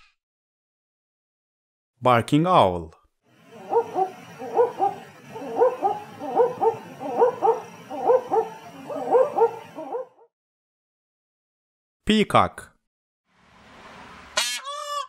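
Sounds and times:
owl barking call: 0:03.4 - 0:10.3.

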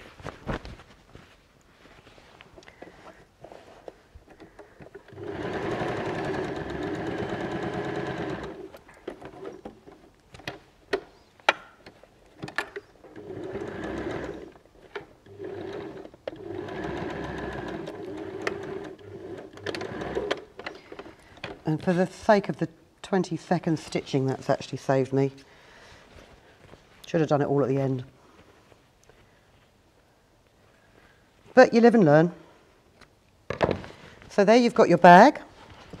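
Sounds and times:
sewing machine stitching: 0:03.8 - 0:10.0, 0:12.4 - 0:21.5.

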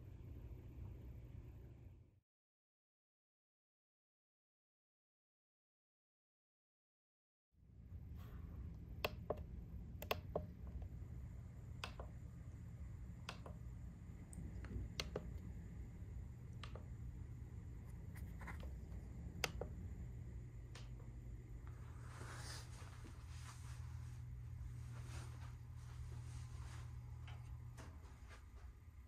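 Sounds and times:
low room hum: 0:00.0 - 0:02.2, 0:07.6 - 0:29.0
push buttons clicking: 0:09.0 - 0:10.9, 0:11.7 - 0:12.2, 0:13.2 - 0:13.6, 0:14.5 - 0:15.5.

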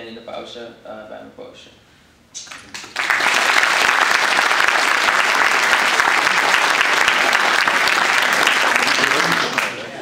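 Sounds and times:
audience applauding: 0:02.5 - 0:10.0.

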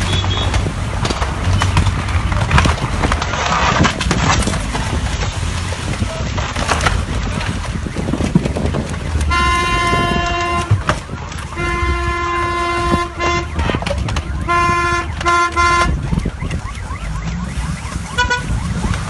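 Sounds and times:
car horn steady tone: 0:00.0 - 0:00.6, 0:09.2 - 0:18.6
crackles: 0:00.0 - 0:19.0.

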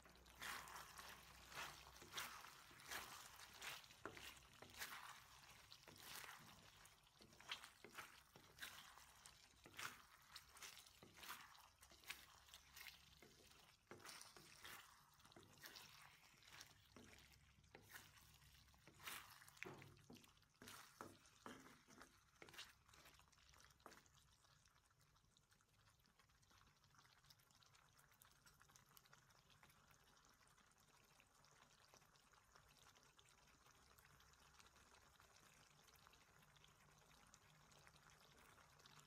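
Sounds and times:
wet squelching: 0:00.0 - 0:24.1
spatula scraping wok: 0:00.1 - 0:22.6.

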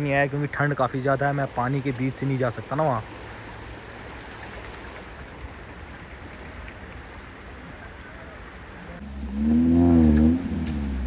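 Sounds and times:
river water rushing: 0:00.0 - 0:11.0
car engine revving: 0:09.0 - 0:11.0.

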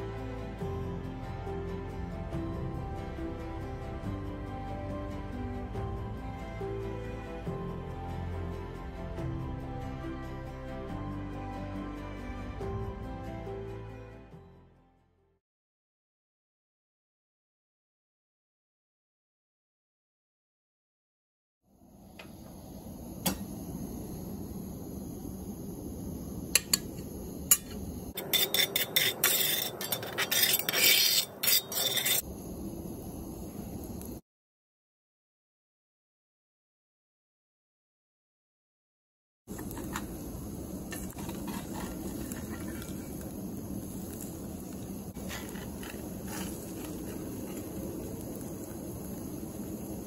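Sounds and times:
metal spatula scraping a pan: 0:27.5 - 0:32.2, 0:41.0 - 0:43.2, 0:45.2 - 0:47.6
butter sizzling in skillet: 0:27.5 - 0:32.3, 0:40.9 - 0:50.0
steady low background noise: 0:39.5 - 0:50.0.

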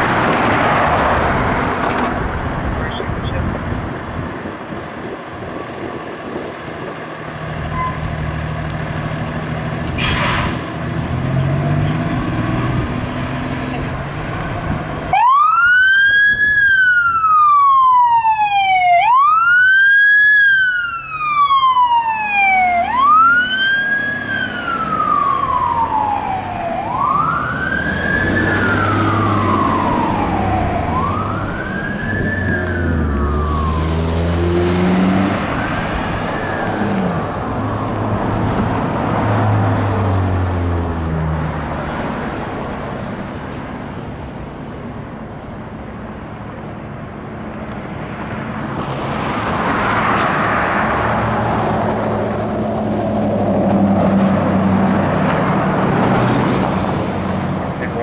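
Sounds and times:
siren wailing up and down: 0:15.1 - 0:38.0.

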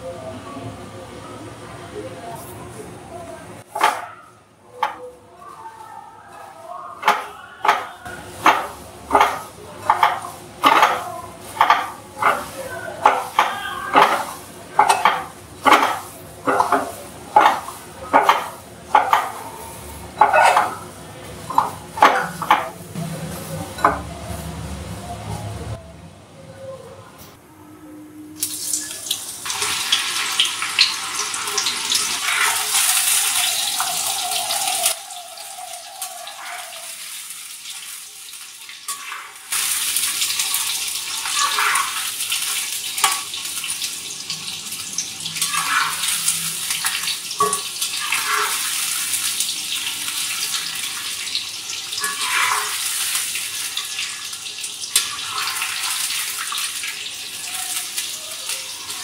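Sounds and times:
spatula scraping a wok: 0:07.0 - 0:22.5, 0:47.8 - 0:49.2, 0:51.9 - 0:54.0
food sizzling in hot oil: 0:28.4 - 0:59.0.

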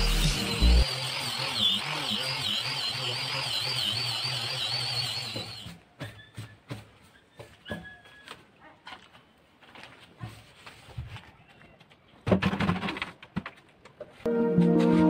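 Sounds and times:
angle grinder sanding wood: 0:00.0 - 0:05.8.

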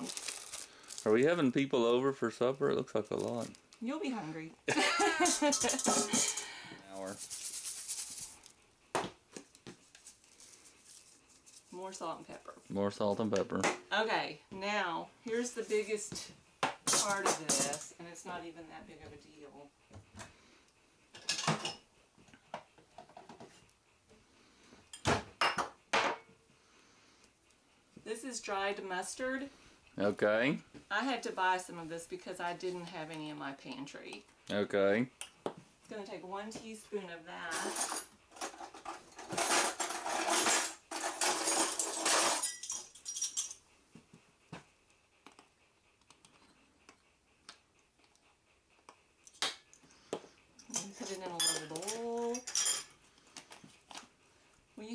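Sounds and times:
containers rustling and scraping: 0:05.0 - 0:08.6, 0:16.8 - 0:18.0, 0:37.4 - 0:43.6
metal utensils jangling in drawer: 0:05.2 - 0:06.5, 0:37.5 - 0:43.6, 0:50.6 - 0:52.9
spoon clinking against jar: 0:50.6 - 0:52.9.

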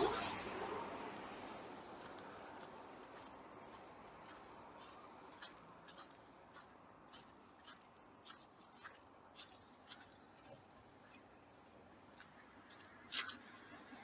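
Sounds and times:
footsteps crunching on snow: 0:01.4 - 0:14.0.

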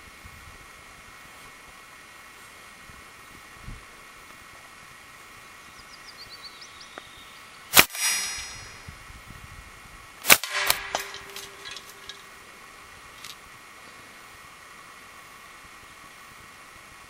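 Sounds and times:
bb gun shots: 0:07.7 - 0:08.8, 0:10.2 - 0:12.2
bbs clanging on metal targets: 0:08.0 - 0:08.8, 0:10.3 - 0:12.4.

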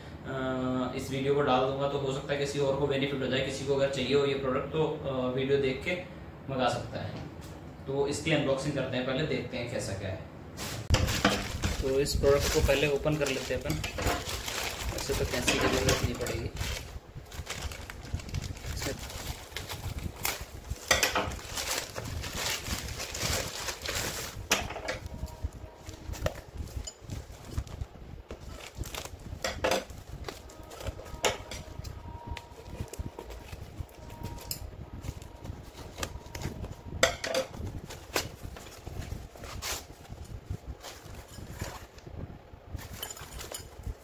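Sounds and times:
plastic crinkling: 0:10.6 - 0:42.0
scissors cutting plastic: 0:10.9 - 0:25.4.

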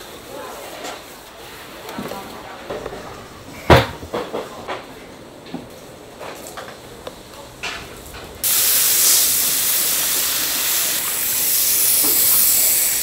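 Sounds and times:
loud steady hiss: 0:07.9 - 0:13.0.

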